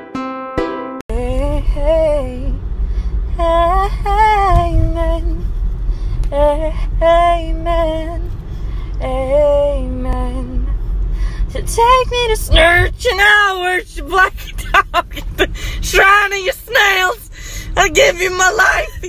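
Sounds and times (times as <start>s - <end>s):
steady low rumble: 1.1s - 19.0s
woman singing unaccompanied: 3.4s - 5.4s, 6.3s - 8.3s, 11.5s - 19.0s.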